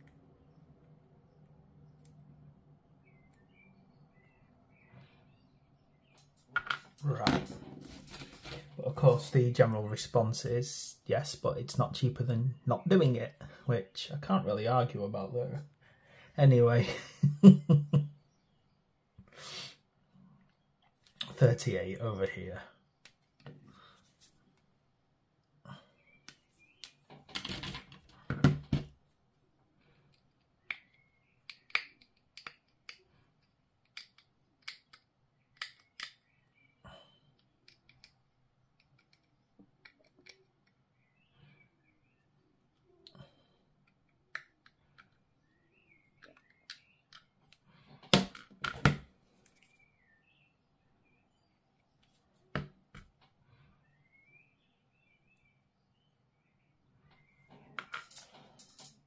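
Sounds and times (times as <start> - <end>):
plastic parts handled: 6.3 - 8.8.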